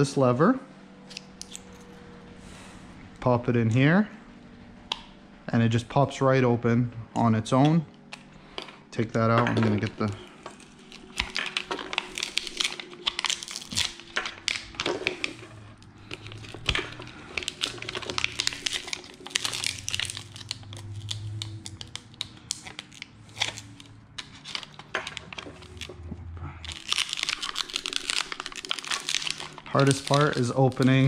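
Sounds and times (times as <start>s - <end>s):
plastic blister pack crinkling: 9.6s - 26.0s, 26.6s - 31.0s.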